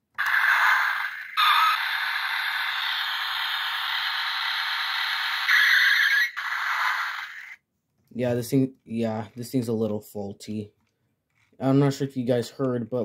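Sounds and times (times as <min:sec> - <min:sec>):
toy engine-rev sound effect: 0:00.1 - 0:07.6
toy motor and gearbox whir: 0:00.2 - 0:07.6.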